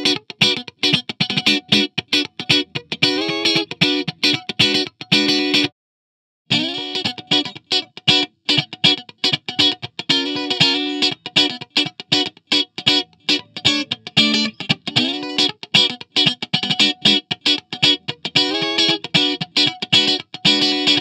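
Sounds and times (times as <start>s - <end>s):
electric guitar choppy riff: 0.0s - 5.7s, 6.5s - 21.0s.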